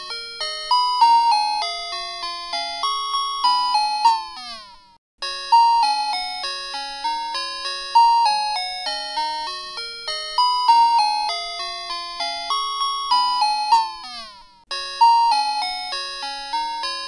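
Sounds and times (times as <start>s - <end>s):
bell-like melody: 0.0s - 17.0s.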